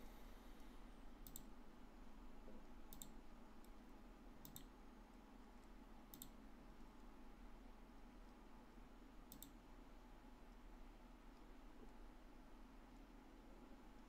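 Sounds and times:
faint double tick clicks: 0.6s - 1.5s, 2.9s - 3.8s, 4.4s - 4.7s, 5.6s - 6.4s, 9.3s - 9.6s.

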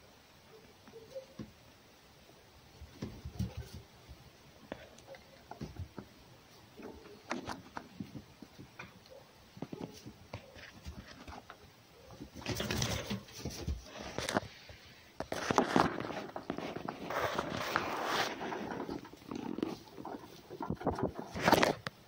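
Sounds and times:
animals rustling in hay: 13.0s - 21.7s.

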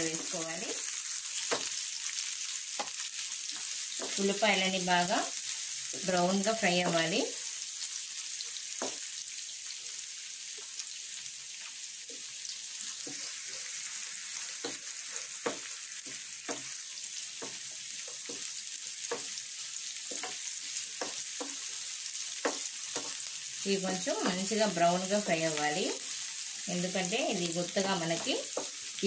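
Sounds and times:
onions sizzling in hot oil: 0.0s - 29.0s
spatula scraping and knocking pan: 2.7s - 4.2s, 20.0s - 21.7s, 22.4s - 23.2s.

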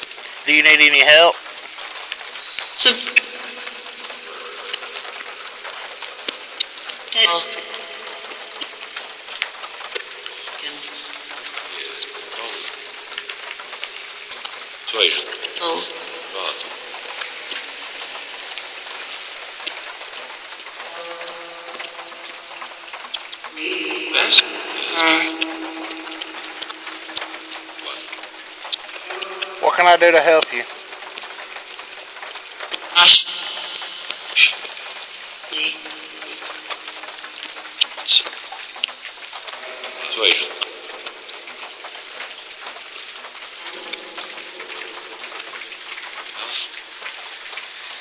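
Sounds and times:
steady noise hiss: 0.0s - 48.0s
steady rain falling: 0.0s - 48.0s
garbled voice-like fragments: 2.8s - 38.4s, 39.4s - 47.4s
low hum of steady tones: 20.8s - 32.2s.

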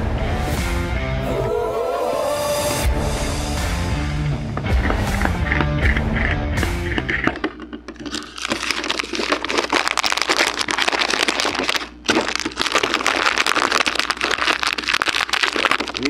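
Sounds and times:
chewing and crunching: 8.0s - 16.0s.

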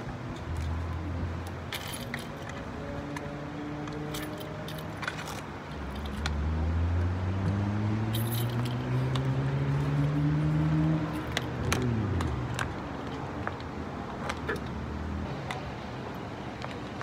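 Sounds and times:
vehicle engine passing: 6.1s - 12.8s
bike frame clicks and knocks: 11.2s - 14.8s.

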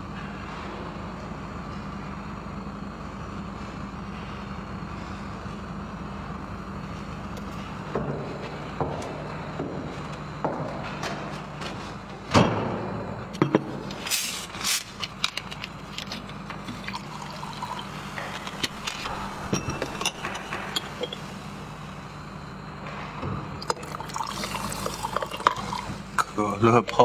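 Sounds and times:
low steady hum: 0.0s - 27.0s
liquid trickling into a mug: 16.7s - 18.1s, 23.6s - 26.0s.

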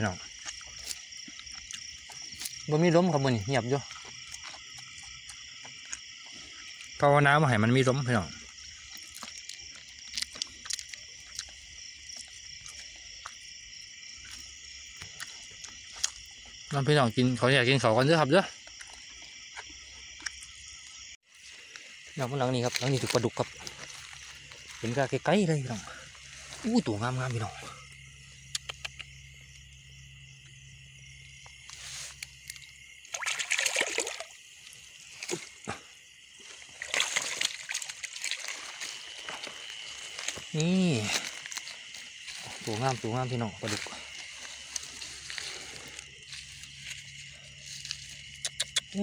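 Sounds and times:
crickets and insects trilling: 0.0s - 49.0s
fish splashing in water: 32.5s - 35.4s, 36.6s - 39.2s.

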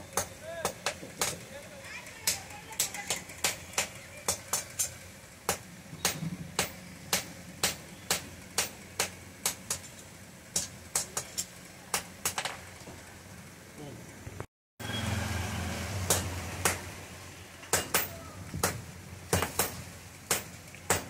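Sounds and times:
hammer striking iron on anvil: 2.3s - 9.9s, 10.6s - 12.6s, 16.1s - 16.8s, 17.7s - 21.0s.

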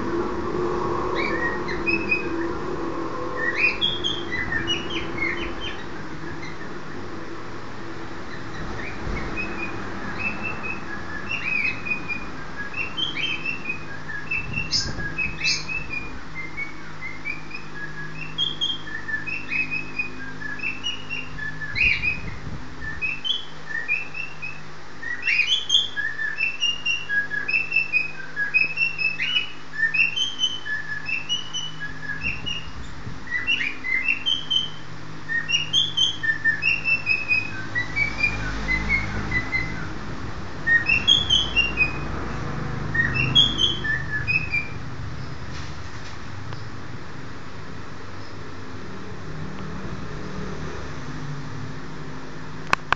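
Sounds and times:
cockatiel whistling and chirping: 1.2s - 2.5s, 3.4s - 6.7s, 8.3s - 40.0s, 40.6s - 42.1s, 42.9s - 44.8s.

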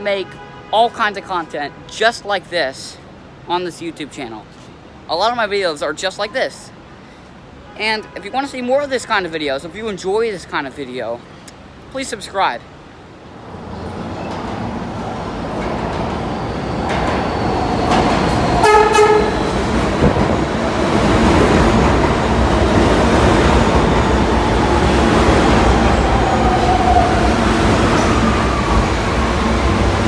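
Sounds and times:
subway train rumbling: 12.7s - 30.0s
train whine falling in pitch: 16.4s - 20.5s
train horn blast: 18.6s - 19.5s.

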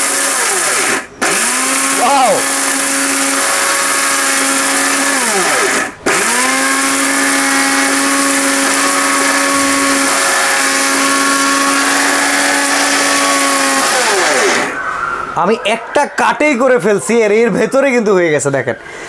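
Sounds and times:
mixer grinder motor grinding: 0.0s - 14.8s.

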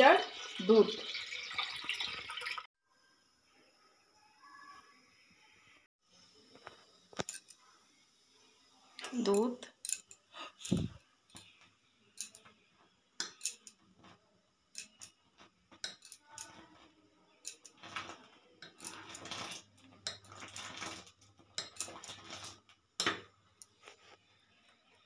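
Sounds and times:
metal utensils clinking on pot: 7.2s - 7.6s, 9.0s - 11.6s, 12.2s - 12.5s, 13.2s - 23.7s.

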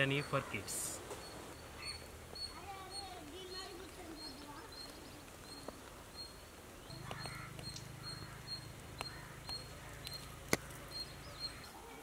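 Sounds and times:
faint high chirps: 0.0s - 12.0s
sharp clicks: 7.0s - 7.9s.

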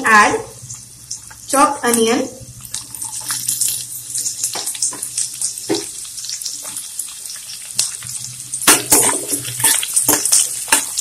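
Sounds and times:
onion sizzling in hot oil: 0.0s - 11.0s.

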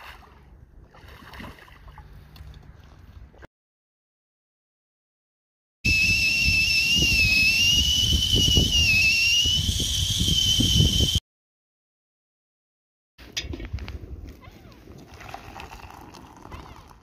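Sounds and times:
kettle whistling: 5.8s - 11.2s.

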